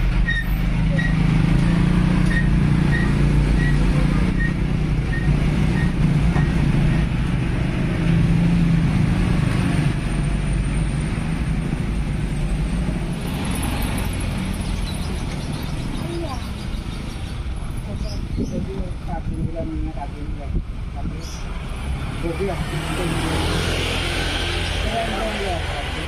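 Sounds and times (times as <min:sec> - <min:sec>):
diesel truck engine running: 0:00.0 - 0:16.4
road traffic: 0:00.0 - 0:26.0.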